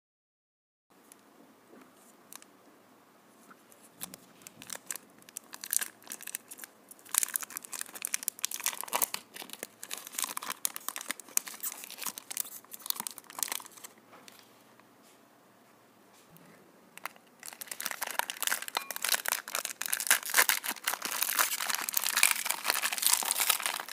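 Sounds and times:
plastic wrapper crinkling and tearing: 3.9 - 14.4, 17.0 - 23.9.

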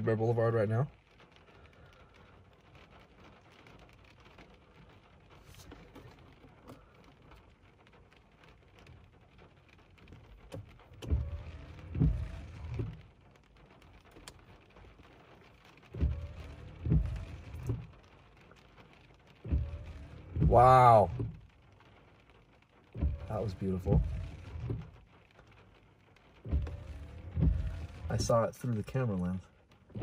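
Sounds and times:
rain pattering: 0.0 - 30.0
low rumbling: 10.6 - 13.3, 15.8 - 30.0.

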